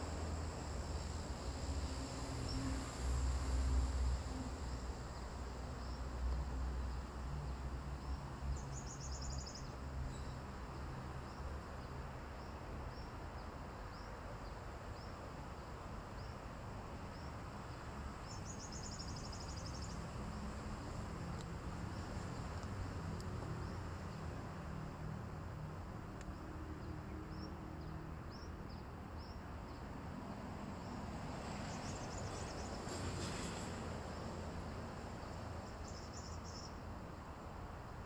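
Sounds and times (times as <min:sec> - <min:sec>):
insects high-pitched whine: 0:00.0 - 0:38.0.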